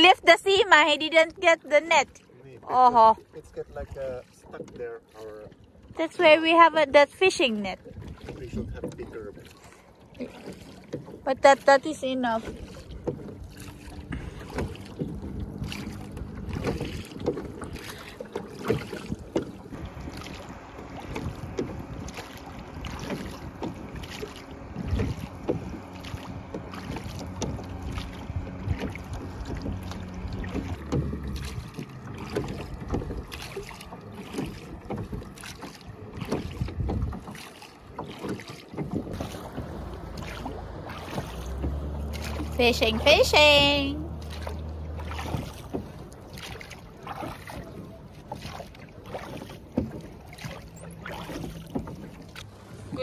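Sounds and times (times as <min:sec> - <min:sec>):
oars knocking and creaking: 0:00.0 - 0:53.0
oars splashing in water: 0:00.0 - 0:53.0
wind buffeting microphone: 0:07.7 - 0:09.4, 0:12.3 - 0:48.7.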